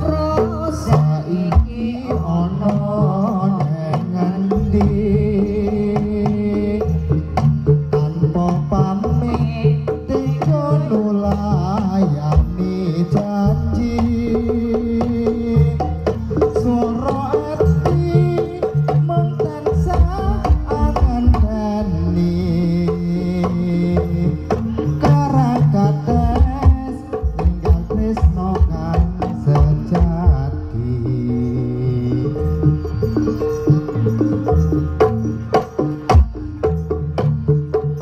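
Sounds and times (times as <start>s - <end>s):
hand drums driving rhythm: 0.0s - 38.0s
wavering melodic line: 29.7s - 38.0s.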